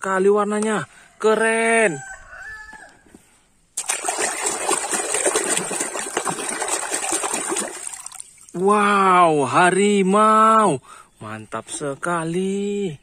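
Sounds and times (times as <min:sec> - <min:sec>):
rooster crowing: 0:01.2 - 0:03.2
water splashing in a tub: 0:03.8 - 0:08.7.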